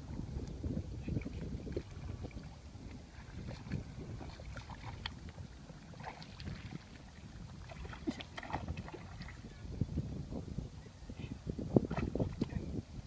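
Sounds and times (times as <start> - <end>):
wind rumble on microphone: 0.0 - 13.0
water sloshing and splashing: 1.1 - 9.6.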